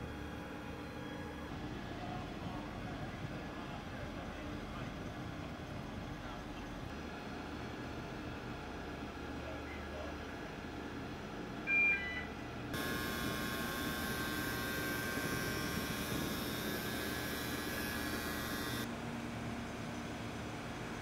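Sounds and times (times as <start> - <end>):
transporter mechanical hum: 0.0 - 21.0
short electronic beep: 11.7 - 12.4
bright hiss with steady whine: 12.8 - 18.9.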